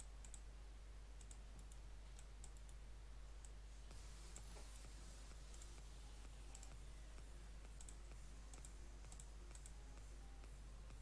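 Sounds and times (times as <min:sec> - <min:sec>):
computer mouse clicks: 0:00.0 - 0:00.4, 0:01.2 - 0:02.8, 0:05.5 - 0:11.0
low steady hum: 0:00.0 - 0:11.0.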